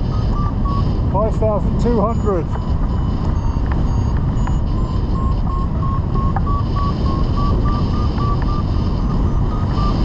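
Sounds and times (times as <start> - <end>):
airflow rushing over microphone: 0.0 - 10.0
variometer beeping rising pitch: 0.0 - 10.0.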